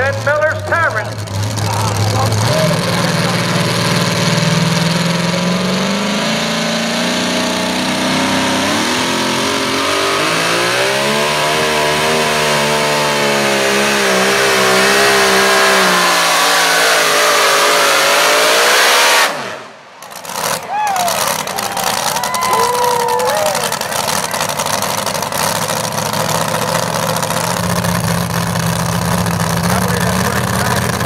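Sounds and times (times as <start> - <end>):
truck engine at full throttle: 0.0 - 31.0.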